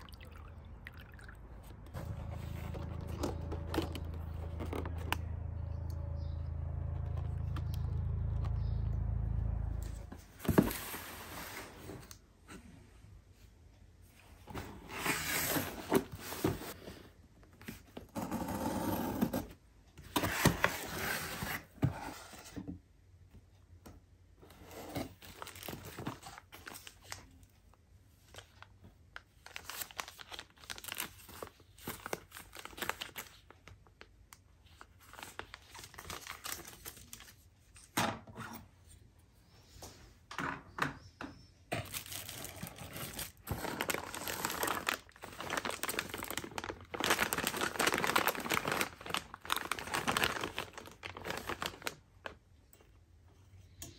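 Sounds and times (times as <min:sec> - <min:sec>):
plastic and bubble wrap crinkling: 0:29.2 - 0:37.4, 0:41.8 - 0:52.4.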